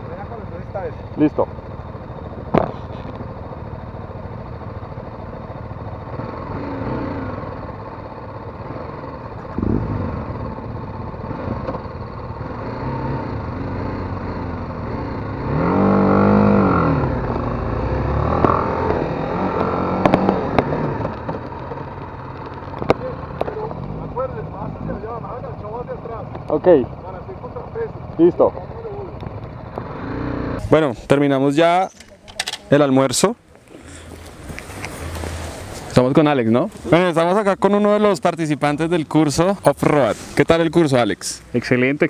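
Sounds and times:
motorcycle accelerating: 0:00.0 - 0:31.9, 0:32.7 - 0:42.0
wind noise: 0:09.6 - 0:10.1.

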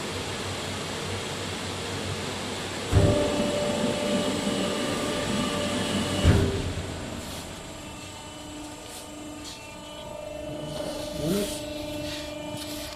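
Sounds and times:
machine mechanical hum: 0:00.0 - 0:12.9
heavy thump of press: 0:02.9 - 0:04.1, 0:04.9 - 0:07.6.

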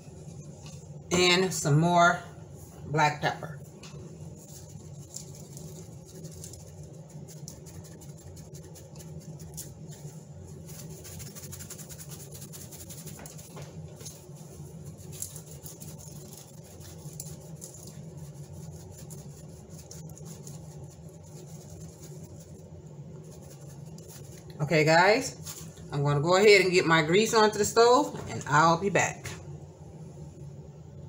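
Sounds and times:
low hum: 0:00.0 - 0:31.0
pepper grains ticking on foil: 0:14.9 - 0:22.6.

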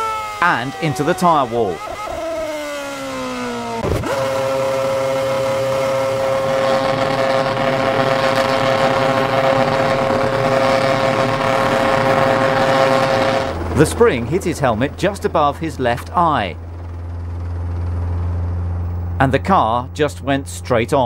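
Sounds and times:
racing car engine: 0:00.0 - 0:21.0.

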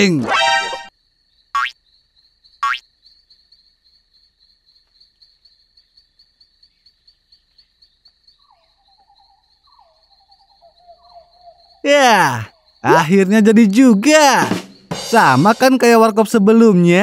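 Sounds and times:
cartoon sound effect: 0:00.0 - 0:00.9
crickets chirping: 0:00.9 - 0:17.0
frogs croaking: 0:00.9 - 0:17.0.

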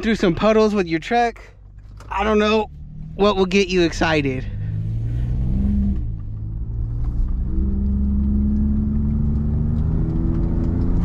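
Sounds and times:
road noise inside cab: 0:00.0 - 0:11.0
truck engine: 0:00.0 - 0:11.0.

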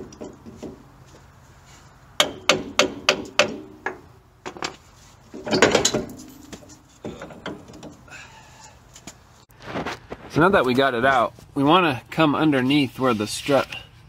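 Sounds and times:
metal clanks and knocks: 0:00.0 - 0:00.9, 0:02.2 - 0:08.1.

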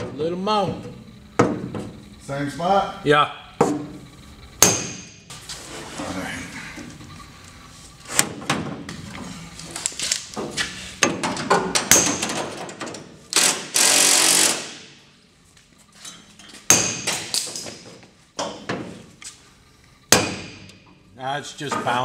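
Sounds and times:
hammer striking sheet metal: 0:04.6 - 0:05.2.

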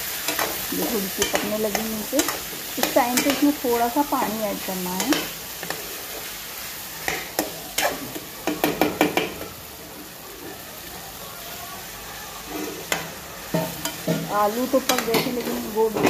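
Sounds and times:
vegetables sizzling in a pan: 0:00.0 - 0:16.0
metal spoon scraping a pan: 0:00.1 - 0:06.4, 0:07.0 - 0:09.2, 0:12.4 - 0:16.0.

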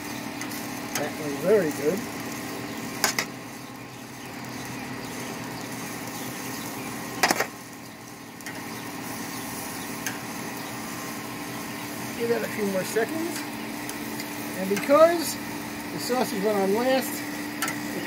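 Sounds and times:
metal tongs clicking on grill: 0:00.4 - 0:01.2, 0:03.0 - 0:03.3, 0:08.4 - 0:08.6, 0:10.0 - 0:10.2, 0:13.3 - 0:15.1, 0:17.6 - 0:17.8.

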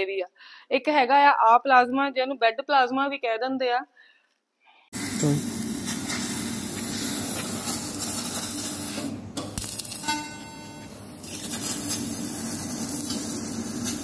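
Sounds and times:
laser cutter hissing: 0:05.0 - 0:10.2, 0:11.1 - 0:14.0.

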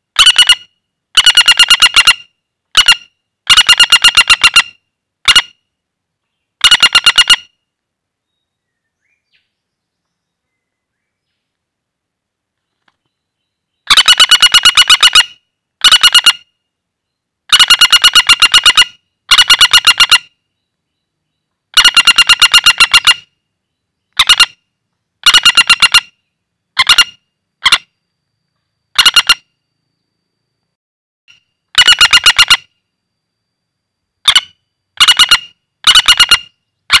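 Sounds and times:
woodpecker rattling calls: 0:00.2 - 0:05.5, 0:06.6 - 0:07.6, 0:13.8 - 0:16.5, 0:17.5 - 0:20.4, 0:21.7 - 0:23.4, 0:24.0 - 0:24.6, 0:25.2 - 0:27.9, 0:29.0 - 0:29.4, 0:31.8 - 0:32.7, 0:34.2 - 0:37.0.

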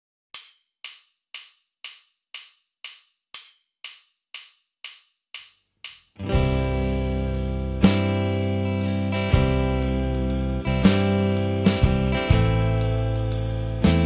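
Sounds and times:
metronome clicks: 0:00.4 - 0:09.1.

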